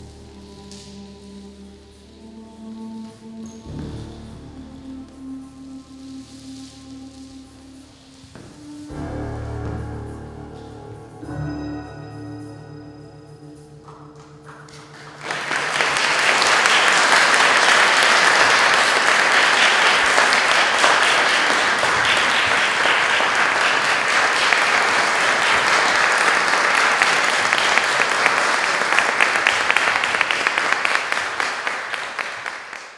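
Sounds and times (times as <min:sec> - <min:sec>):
music held notes: 0:00.0 - 0:29.8
audience applauding: 0:14.6 - 0:32.9.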